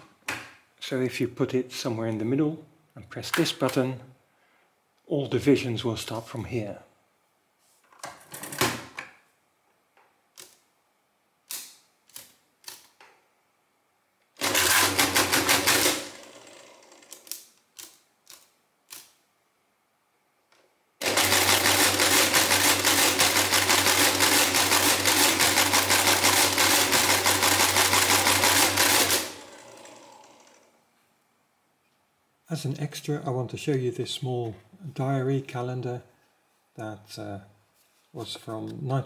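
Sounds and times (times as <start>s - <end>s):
calculator motor and gears clattering: 14.4s - 17.4s, 21.0s - 30.7s.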